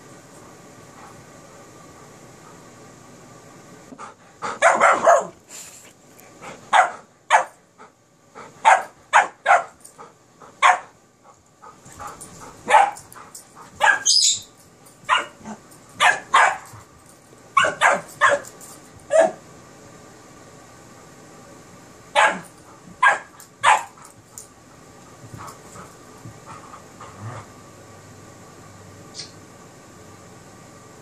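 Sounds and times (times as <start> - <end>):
dogs barking: 4.5 - 5.4, 6.7 - 7.6, 8.6 - 9.8, 10.6 - 10.9, 12.6 - 13.1, 13.8 - 14.4, 15.1 - 16.7, 17.6 - 18.5, 22.2 - 24.0
dog yipping: 13.8 - 14.5, 17.6 - 18.4.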